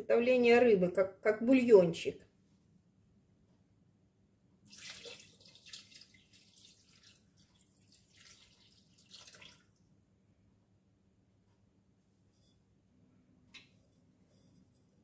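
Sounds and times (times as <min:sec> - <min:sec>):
liquid pouring into metal bowl: 0:04.7 - 0:09.8.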